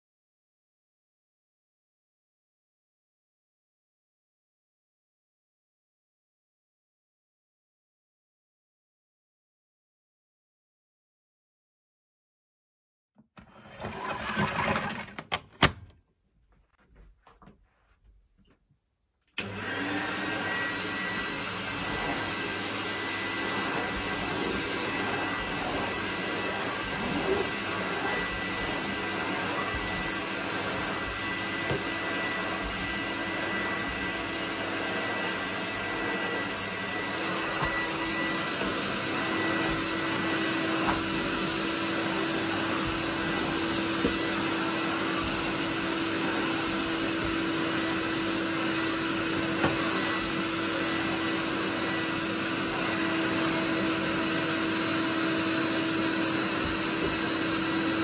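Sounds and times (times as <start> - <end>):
vacuum cleaner running: 19.3 - 58.0.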